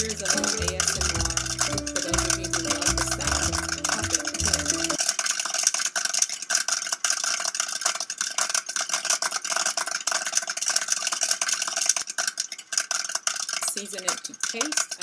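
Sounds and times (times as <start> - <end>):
oil sizzling: 0.0 - 5.0
popcorn popping: 0.0 - 15.0.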